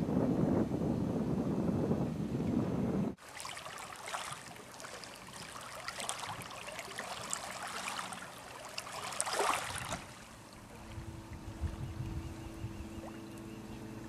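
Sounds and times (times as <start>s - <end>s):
water lapping and splashing: 3.1s - 14.0s.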